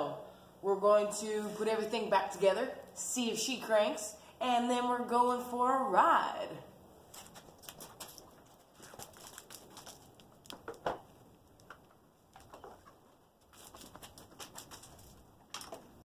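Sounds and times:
faint knocks and clicks: 9.8 - 13.2.

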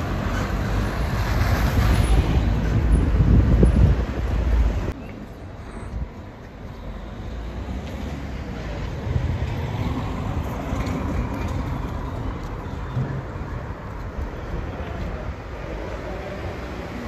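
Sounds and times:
low rumble of vehicles: 0.0 - 17.0.

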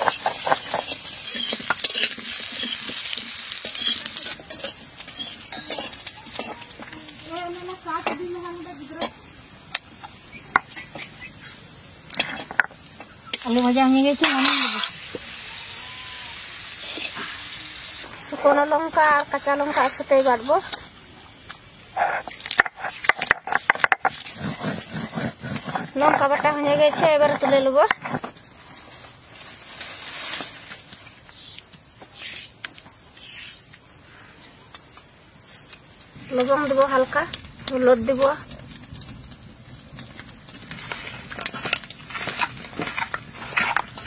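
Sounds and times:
high-pitched insect drone: 13.0 - 44.0.

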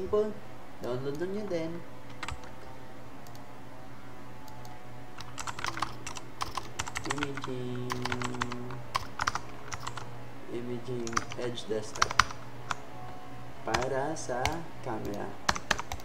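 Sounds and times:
computer keyboard typing: 2.1 - 2.6, 5.2 - 10.0, 10.9 - 12.8, 13.7 - 16.0.

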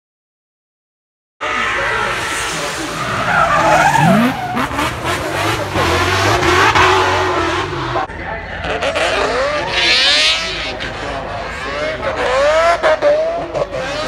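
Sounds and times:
race car engine revving: 1.4 - 14.0.

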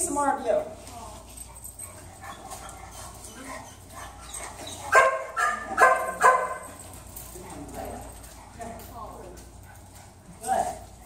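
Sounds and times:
dog barking: 2.2 - 6.8.

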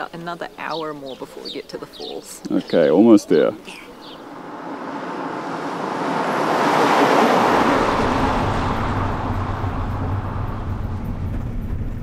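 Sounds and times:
minibus passing: 0.0 - 12.0
road noise: 0.0 - 12.0
engine drone inside cabin: 5.1 - 12.0.

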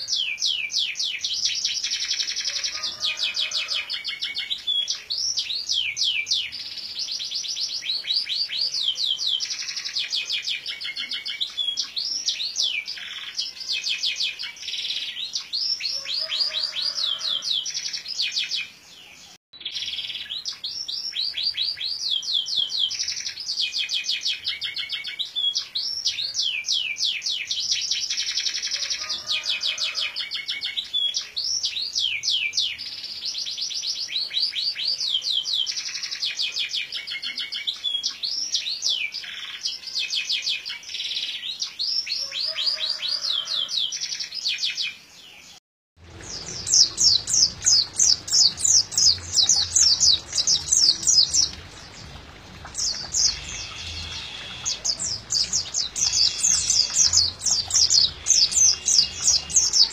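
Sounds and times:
songbird trilling: 46.1 - 59.9.

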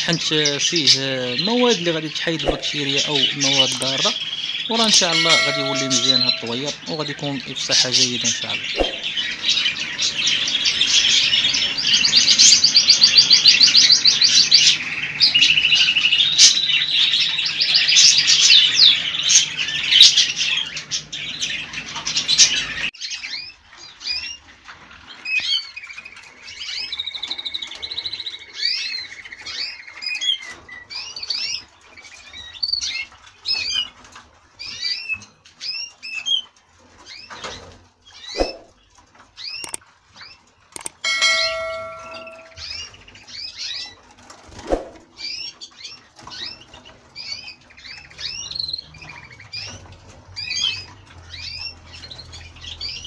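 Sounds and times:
cage birds chirping: 0.0 - 53.0.

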